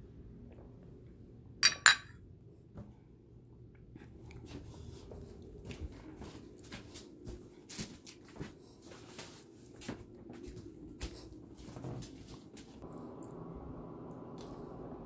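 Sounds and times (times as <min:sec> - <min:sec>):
low room rumble: 0:00.0 - 0:15.0
footsteps: 0:04.4 - 0:12.8.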